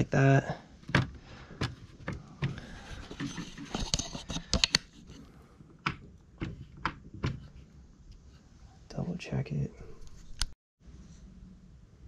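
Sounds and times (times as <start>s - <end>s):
plastic clicks and knocks: 0.8s - 4.9s.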